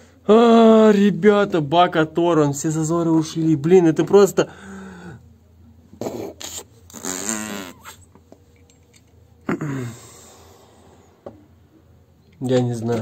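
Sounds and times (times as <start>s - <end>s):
man sighing: 9.5s - 10.6s.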